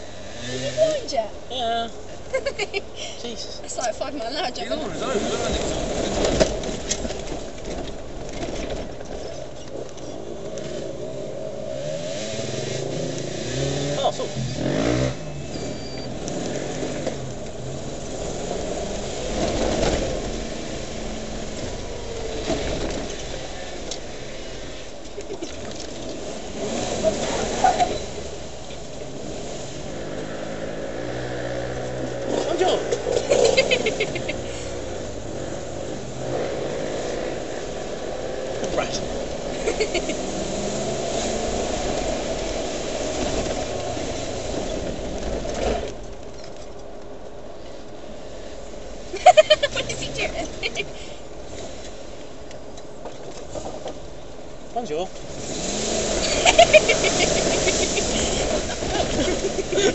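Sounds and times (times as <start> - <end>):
car engine running: 0.0 - 59.9
vehicle rumble inside cab: 0.0 - 59.9
knocks and rattles: 5.6 - 10.1.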